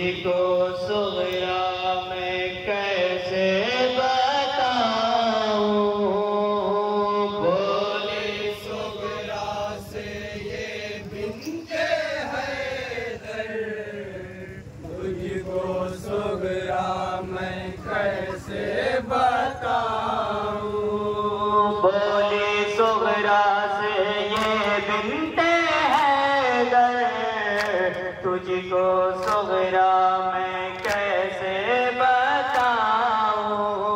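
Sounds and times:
man chanting over loudspeaker: 0:00.0 - 0:33.9
chest-beating slaps: 0:30.8 - 0:31.1.

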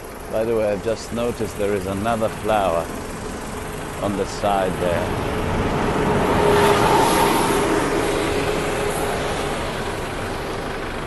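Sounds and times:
engine passing by: 0:00.2 - 0:11.0.

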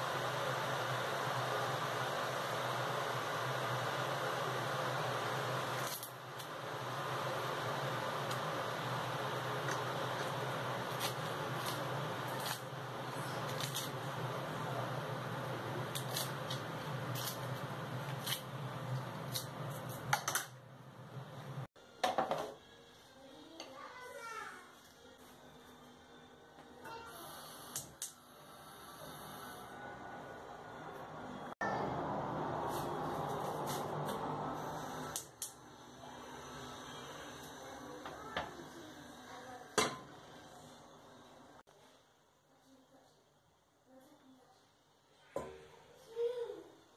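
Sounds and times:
steady low hum: 0:00.0 - 0:21.7.

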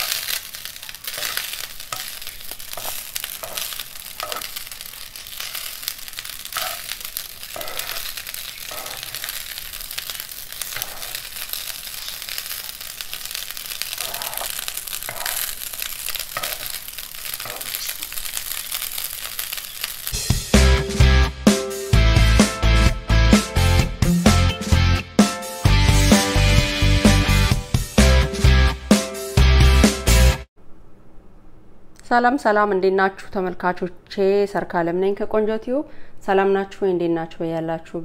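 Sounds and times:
metal spoon scraping a pan: 0:00.0 - 0:12.3, 0:14.0 - 0:17.7
food sizzling in a frying pan: 0:00.0 - 0:20.9.

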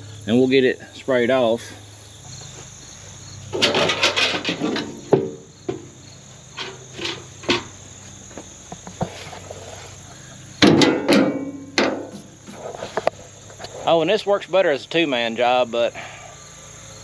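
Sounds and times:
insects chirping: 0:00.0 - 0:17.0
metal screen clattering: 0:03.5 - 0:05.9, 0:06.6 - 0:07.8, 0:10.6 - 0:12.2.

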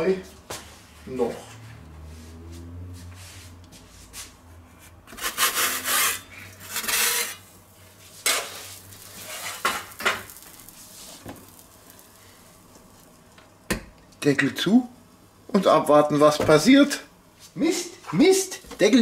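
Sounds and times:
pizza peel scraping on stone: 0:05.1 - 0:07.4, 0:08.2 - 0:10.1.

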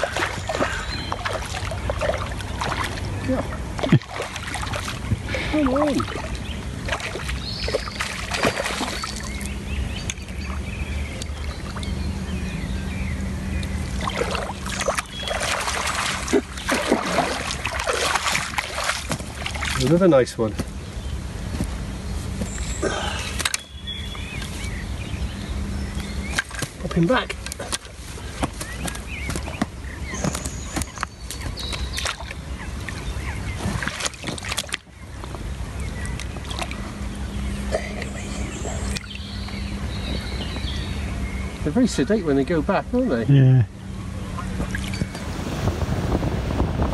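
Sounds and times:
sharp splashes and knocks: 0:00.0 - 0:11.9, 0:13.6 - 0:20.8, 0:26.2 - 0:35.4, 0:36.0 - 0:36.9, 0:44.4 - 0:46.9
water sloshing and splashing: 0:00.0 - 0:12.0, 0:13.6 - 0:20.7, 0:26.1 - 0:40.8, 0:44.2 - 0:46.9
boat engine idling: 0:00.0 - 0:22.1.

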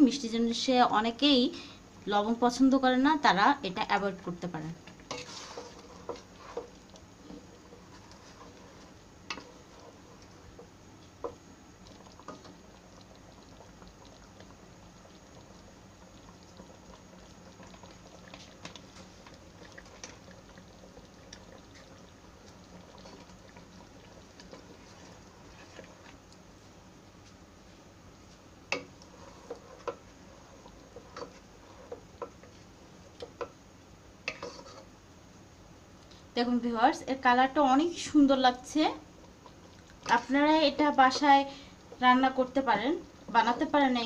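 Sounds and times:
syrup bubbling and popping: 0:04.4 - 0:35.0, 0:38.5 - 0:44.0
wooden spatula tapping pan: 0:28.7 - 0:29.0.

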